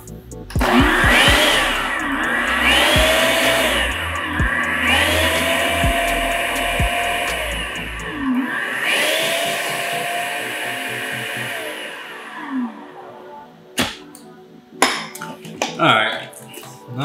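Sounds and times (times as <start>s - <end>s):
food processor motor running: 0.6s - 12.1s.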